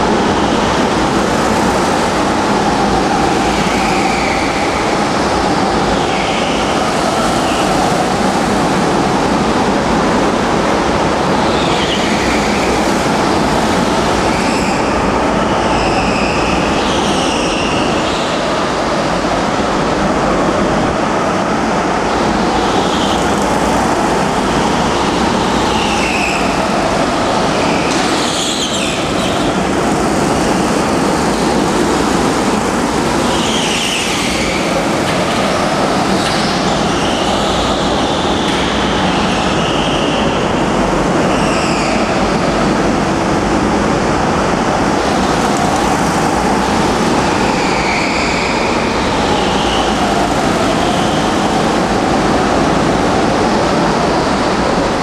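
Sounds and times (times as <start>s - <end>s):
go-kart motors droning: 0.0s - 55.0s
tyre squeals: 25.5s - 31.6s, 47.2s - 51.6s.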